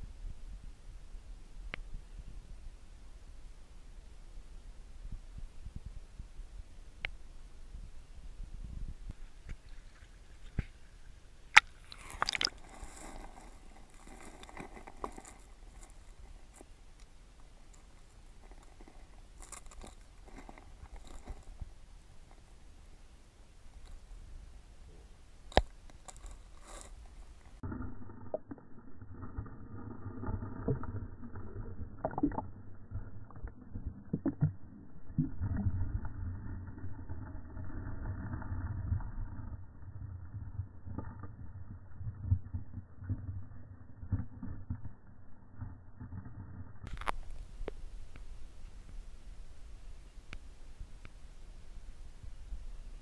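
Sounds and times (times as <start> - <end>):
underwater creek rumble: 0.0 - 53.0
small underwater clicks and knocks: 9.1 - 10.8, 11.5 - 22.6, 25.5 - 49.0
crackling fizz of water: 11.5 - 22.7, 25.5 - 49.1.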